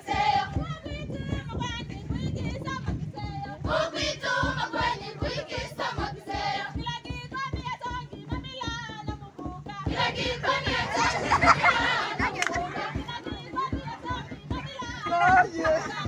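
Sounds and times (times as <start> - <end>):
group of voices singing: 0.0 - 0.7, 3.2 - 8.0, 9.7 - 16.0
steady low beat: 0.0 - 16.0.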